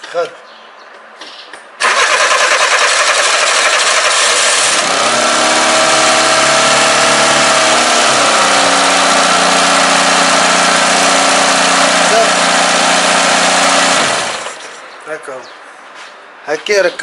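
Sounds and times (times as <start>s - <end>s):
car engine starting and idling: 1.8s - 14.8s.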